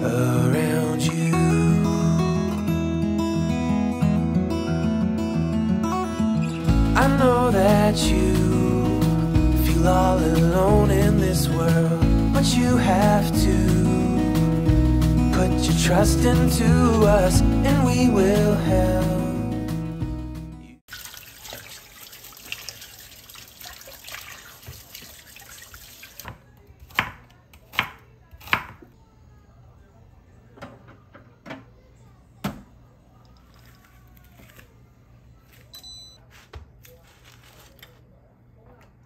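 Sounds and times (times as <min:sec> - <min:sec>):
music: 0:00.0 - 0:20.8
water running into a sink: 0:20.9 - 0:26.4.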